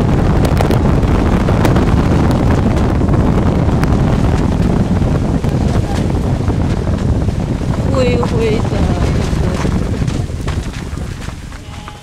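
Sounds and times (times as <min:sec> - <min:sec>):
vehicle road noise: 0:00.0 - 0:12.0
wind buffeting the microphone: 0:00.0 - 0:12.0.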